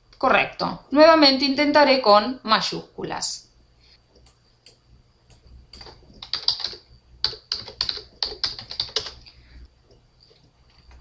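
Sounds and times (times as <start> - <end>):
computer keyboard typing: 4.2 - 11.0.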